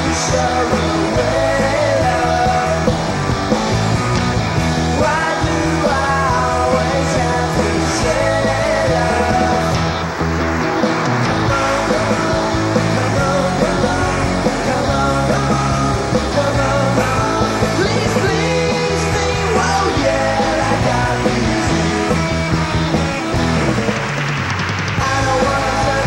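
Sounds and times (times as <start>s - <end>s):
person singing: 0.0s - 3.2s, 4.9s - 9.9s, 11.5s - 22.2s, 25.0s - 26.0s
rock band playing live: 0.0s - 26.0s.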